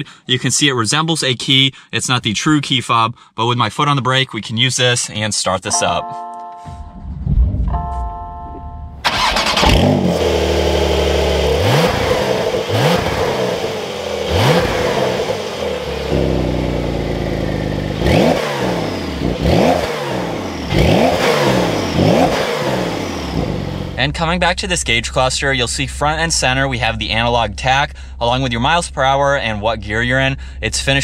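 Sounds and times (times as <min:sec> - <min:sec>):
car engine starting and revving: 0:08.9 - 0:24.0.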